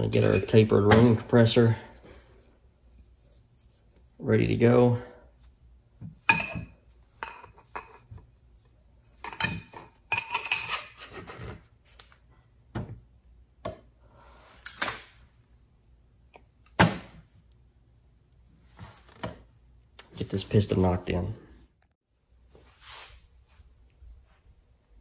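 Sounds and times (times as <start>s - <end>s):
metal engine parts clinking: 0.0s - 0.7s.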